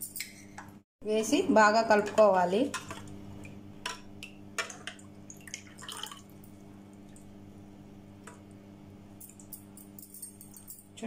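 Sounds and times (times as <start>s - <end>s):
liquid dripping and sloshing: 2.7s - 7.4s.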